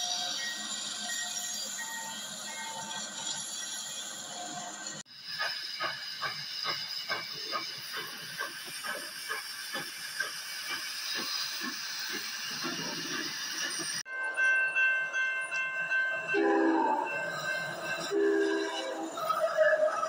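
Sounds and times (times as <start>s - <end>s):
steam locomotive chuffing: 0.0s - 14.1s
train horn sounding: 16.4s - 17.4s, 18.0s - 20.0s.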